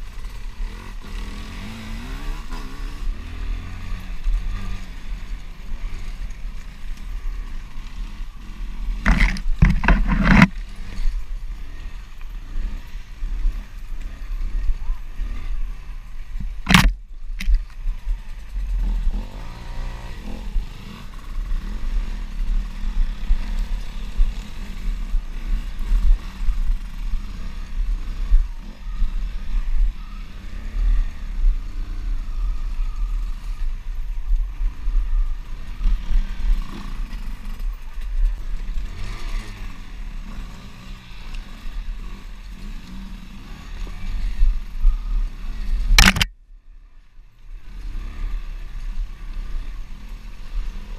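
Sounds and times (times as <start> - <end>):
off-road motorcycle engine: 0.0 - 50.9.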